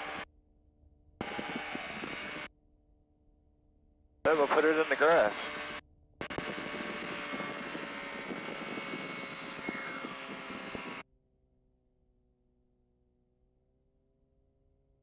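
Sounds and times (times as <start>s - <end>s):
ultralight engine and propeller: 0.0s - 0.3s, 1.2s - 2.6s, 4.3s - 15.0s
wind rush on microphone: 1.2s - 2.5s, 5.4s - 11.0s.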